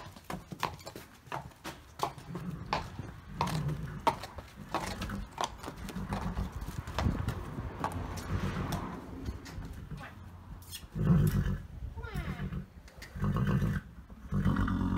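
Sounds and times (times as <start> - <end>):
hooves clip-clopping on brick: 0.0 - 10.3.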